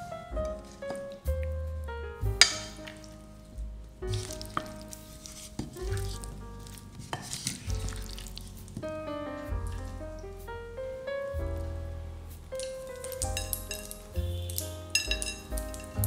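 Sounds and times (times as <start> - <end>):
soft piano music: 0.0 - 16.0
spoon tossing salad in bowl: 4.1 - 8.5, 13.0 - 16.0.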